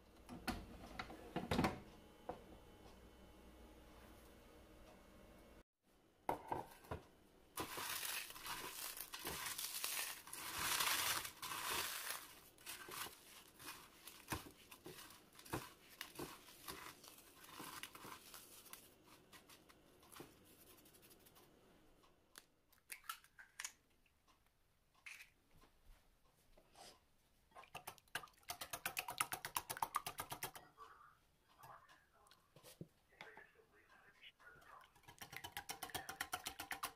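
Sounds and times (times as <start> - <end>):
hands crumbling toasted bread: 7.6 - 18.8
whisk beating egg in bowl: 27.7 - 30.6, 34.8 - 36.9.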